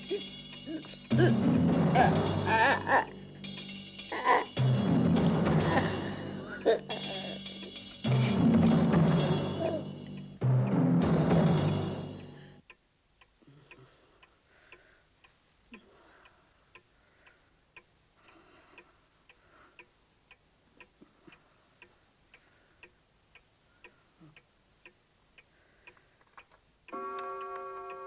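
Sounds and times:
wall clock ticking: 0:00.0 - 0:28.0
loud drum-like music hit: 0:00.1 - 0:12.5.

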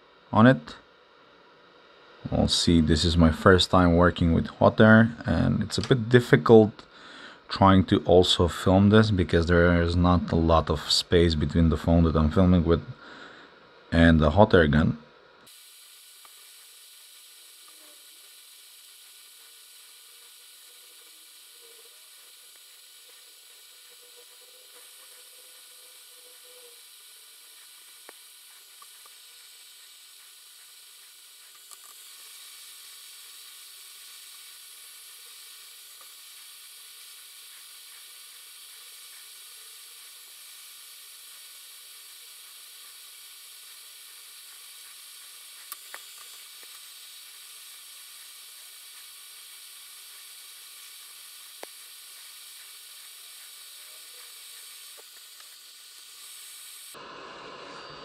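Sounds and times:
hot air gun hissing: 0:15.4 - 0:58.0.

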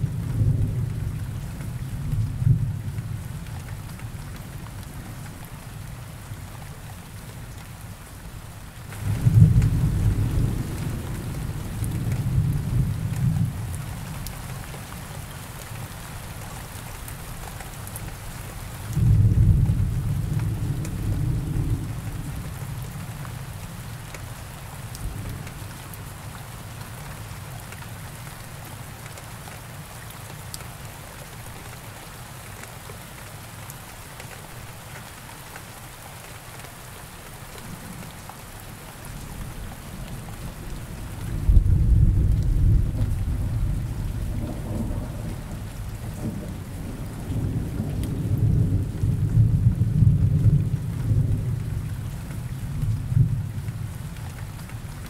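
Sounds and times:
steady rain: 0:00.0 - 0:55.0
thunder rumbling: 0:09.0 - 0:13.8, 0:39.9 - 0:51.9.

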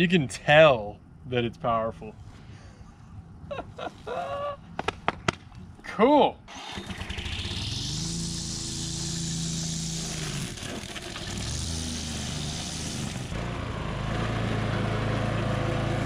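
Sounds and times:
mower engine running: 0:06.5 - 0:16.0
high hiss: 0:07.5 - 0:10.4.

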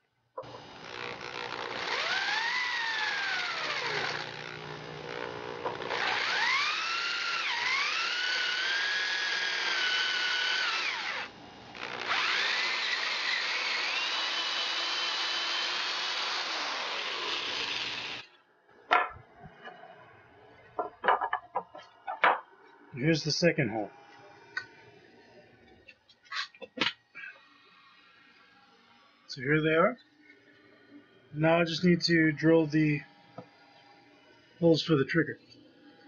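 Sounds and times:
power drill boring into wood: 0:00.4 - 0:18.3.

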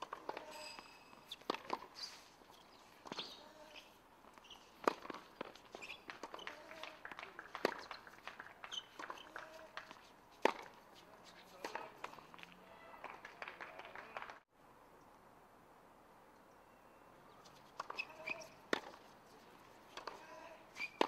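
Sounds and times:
tennis ball struck by racket: 0:01.3 - 0:02.0, 0:04.8 - 0:10.8, 0:11.6 - 0:12.2, 0:17.8 - 0:19.0, 0:19.9 - 0:20.2.

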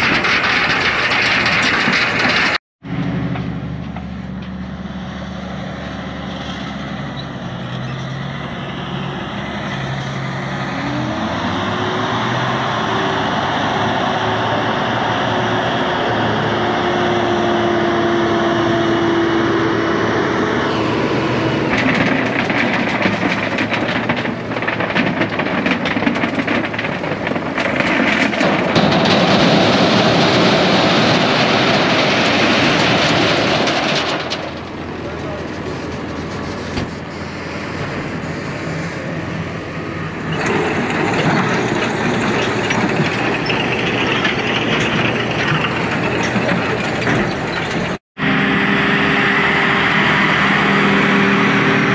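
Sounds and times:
stones tumbling into trailer: 0:00.0 - 0:02.6, 0:21.4 - 0:37.0, 0:40.2 - 0:48.0
tractor engine running: 0:00.0 - 0:51.9.

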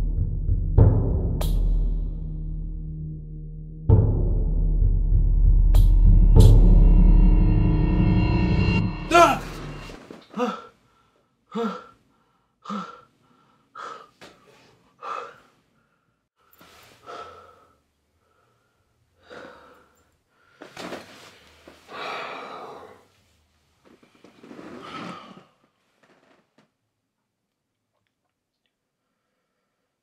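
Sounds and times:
man breathing heavily: 0:10.2 - 0:20.9, 0:21.5 - 0:23.2.

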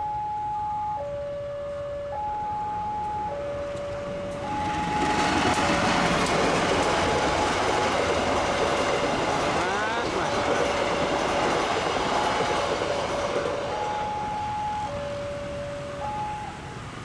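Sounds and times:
level crossing alarm two tones: 0:00.0 - 0:05.7, 0:13.5 - 0:16.9
train rumble and rail noise: 0:00.1 - 0:17.0.

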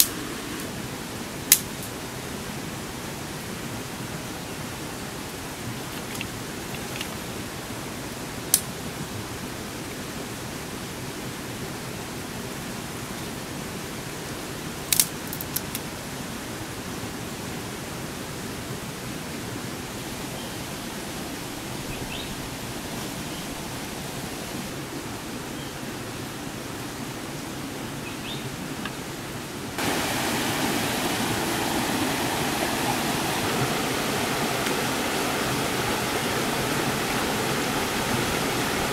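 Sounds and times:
steady outdoor hiss: 0:00.0 - 0:38.9
dry twigs snapping: 0:14.9 - 0:15.8.

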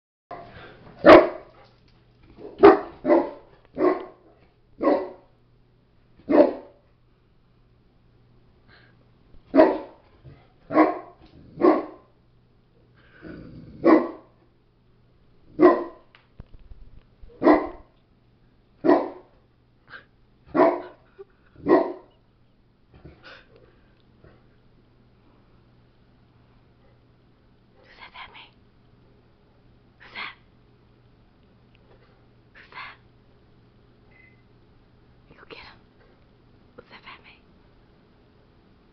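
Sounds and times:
large dog barking: 0:00.3 - 0:01.6, 0:02.4 - 0:05.3, 0:06.2 - 0:06.8, 0:09.5 - 0:10.0, 0:10.6 - 0:12.1, 0:13.8 - 0:14.4, 0:15.5 - 0:16.1, 0:17.4 - 0:17.9, 0:18.8 - 0:19.3, 0:20.5 - 0:21.0, 0:21.6 - 0:22.1.

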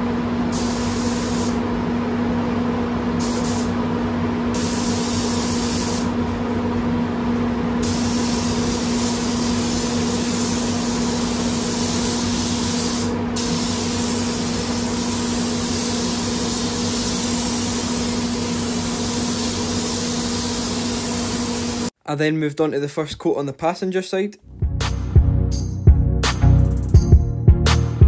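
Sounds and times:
spray gun hissing: 0:00.5 - 0:01.6, 0:03.2 - 0:03.7, 0:04.6 - 0:06.1, 0:07.8 - 0:21.9.

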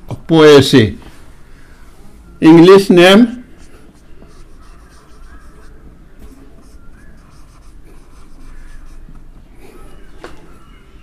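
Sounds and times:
marker scratching on whiteboard: 0:03.5 - 0:09.2
marker squeaks: 0:03.6 - 0:09.2.

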